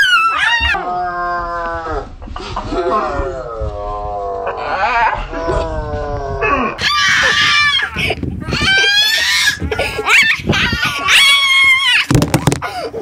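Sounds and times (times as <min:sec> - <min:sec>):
child squealing and shrieking: 0:06.8 - 0:12.1.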